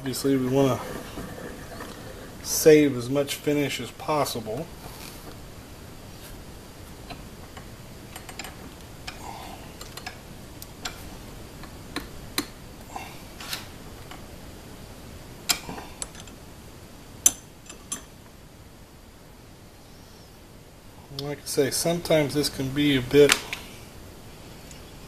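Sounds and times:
light metal clicks and taps: 17.2 - 18.1.

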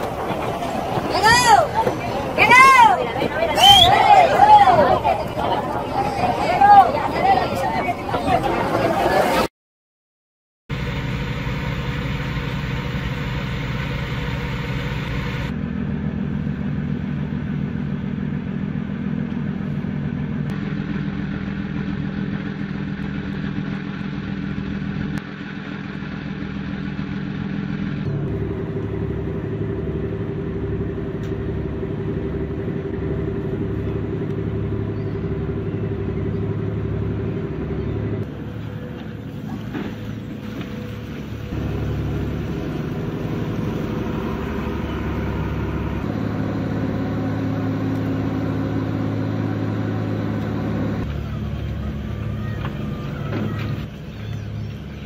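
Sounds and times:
boat engine running: 0.0 - 9.5, 10.7 - 55.0
low pulse beating: 28.0 - 39.3.

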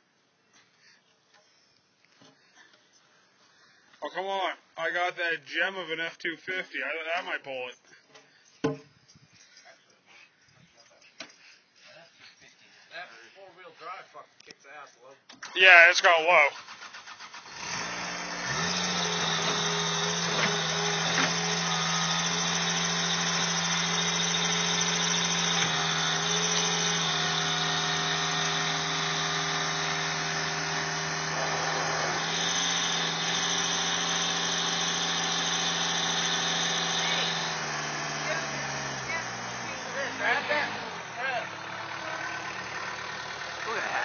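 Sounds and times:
loader engine humming: 17.4 - 44.0.

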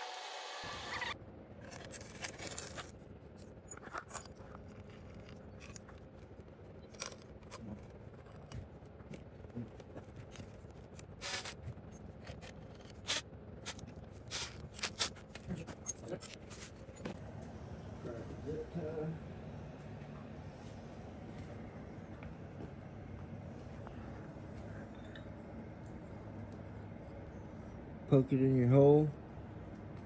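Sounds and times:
hand tools clicking and scraping: 10.2 - 17.2.

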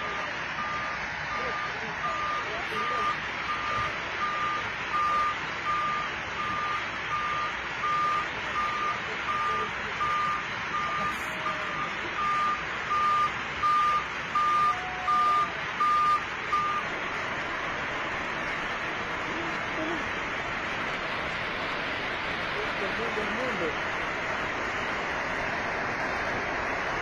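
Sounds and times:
reversing alarm beeping: 0.0 - 16.9
steady rushing noise: 15.6 - 27.0.

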